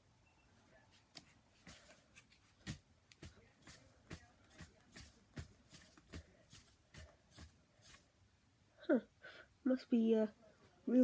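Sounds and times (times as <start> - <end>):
soft thuds and rustles: 1.0 - 8.1.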